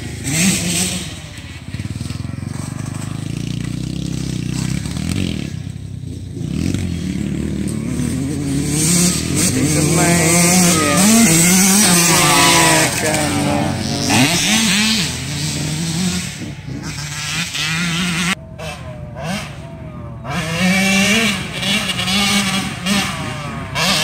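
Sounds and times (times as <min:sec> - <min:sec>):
dirt bike engine revving: 0:00.0 - 0:24.0
dirt bike engines running: 0:00.0 - 0:24.0.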